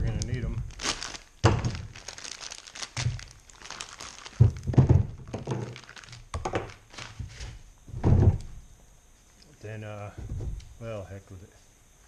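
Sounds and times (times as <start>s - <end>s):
plastic bag crinkling and tearing: 0.0s - 7.2s.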